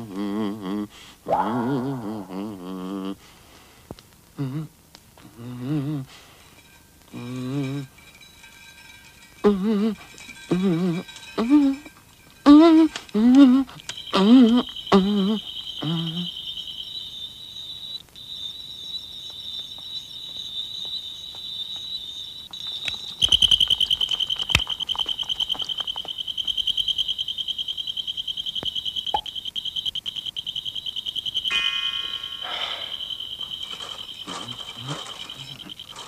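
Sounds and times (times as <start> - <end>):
high pulsing trill: 31.3 - 36.0.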